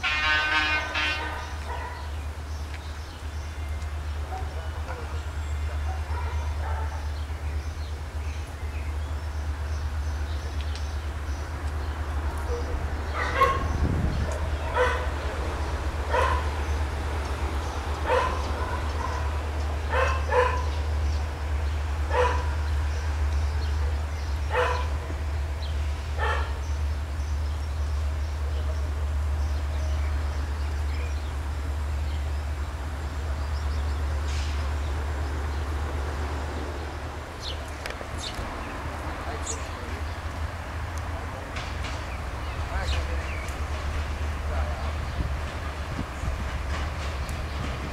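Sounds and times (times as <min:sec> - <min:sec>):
diesel locomotive rumble: 0:00.0 - 0:47.9
dog barking: 0:01.1 - 0:02.1, 0:04.3 - 0:05.1, 0:05.8 - 0:07.1, 0:12.5 - 0:15.2, 0:16.1 - 0:16.5, 0:18.0 - 0:19.3, 0:19.9 - 0:20.8, 0:22.1 - 0:22.5, 0:23.8 - 0:25.2, 0:26.2 - 0:26.6.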